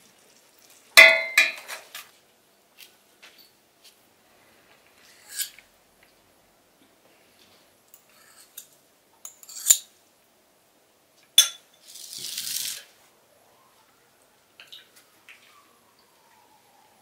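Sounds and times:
metal spoons clinking on plates: 11.4 - 11.8.

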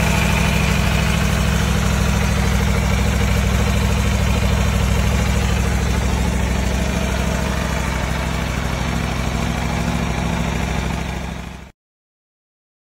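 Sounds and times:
motorcycle engine idling: 0.0 - 11.7.

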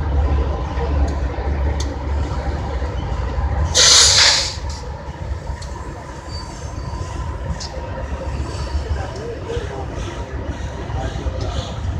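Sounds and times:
diesel locomotives rumbling: 0.0 - 11.9
air hissing burst: 3.7 - 4.8.

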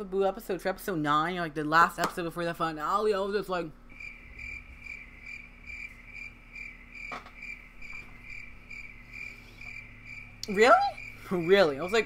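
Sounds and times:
cricket chirping: 3.9 - 12.0.

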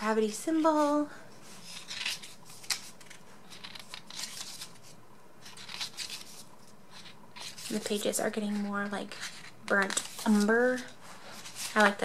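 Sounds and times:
book pages rustling: 0.5 - 12.0.

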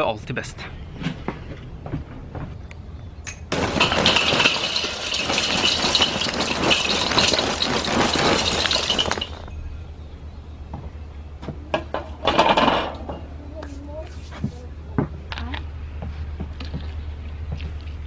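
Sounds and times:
charcoal clattering into metal bowl: 3.5 - 9.5.

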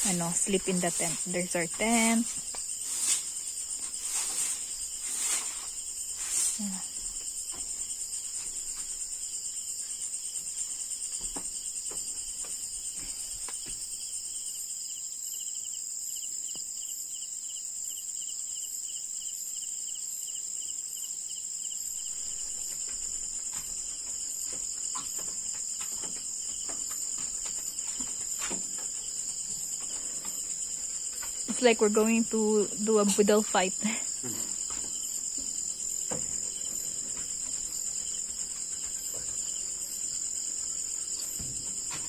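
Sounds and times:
crickets trilling: 0.0 - 42.0
faint knocks and scrapes: 0.4 - 14.0, 22.0 - 42.0
pulsing insect call: 16.9 - 42.0.

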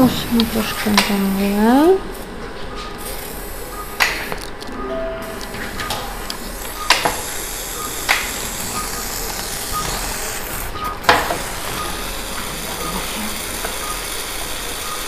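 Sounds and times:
surgical suction hissing: 5.4 - 15.0
sharp clicks: 7.8 - 11.9.

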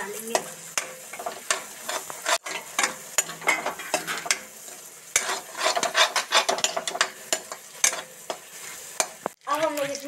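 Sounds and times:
oil sizzling: 0.0 - 10.0
spatula scraping a steel pan: 0.3 - 9.3.

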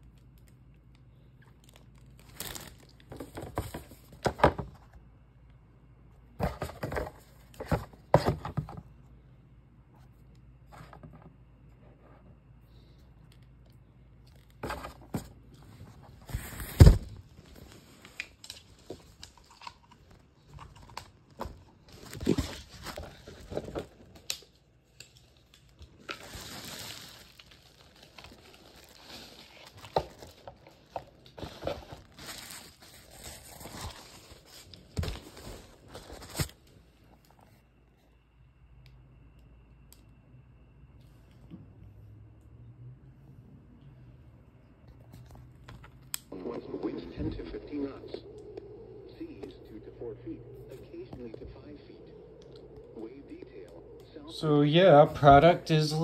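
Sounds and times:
plastic packaging crinkling: 1.4 - 4.1, 16.4 - 36.7.

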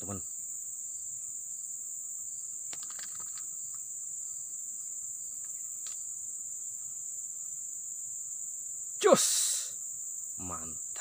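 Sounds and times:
insects droning: 0.0 - 11.0
faint clicks: 2.7 - 3.8, 5.4 - 6.0.

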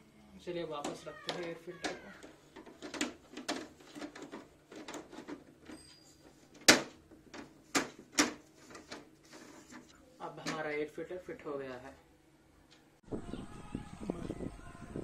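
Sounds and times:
plastic clicks and knocks: 0.8 - 5.7.

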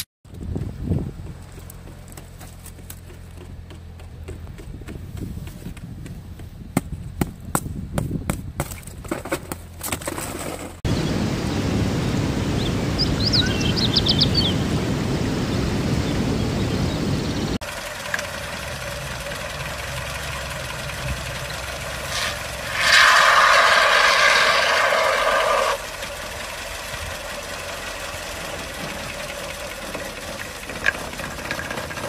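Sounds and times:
aerosol can spraying hiss: 22.1 - 25.8.

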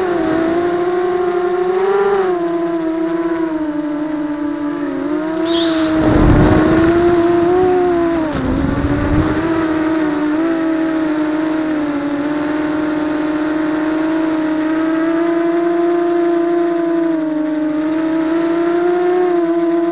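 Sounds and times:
quadcopter motors whining: 0.0 - 19.9
wind buffeting microphone: 4.9 - 10.6.

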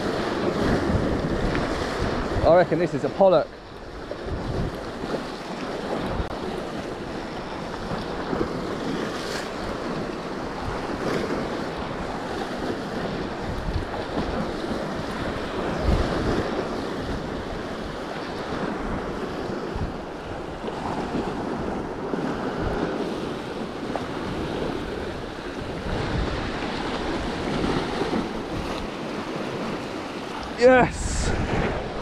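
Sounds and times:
wind buffeting microphone: 0.0 - 32.0
surf breaking against rocks: 20.6 - 32.0.

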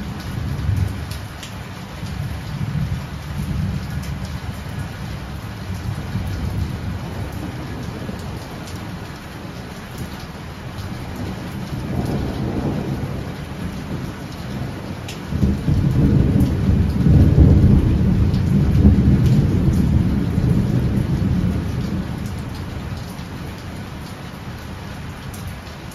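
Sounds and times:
heavy rain pouring: 0.0 - 25.9
rolling thunder: 5.7 - 10.2, 10.9 - 23.6.

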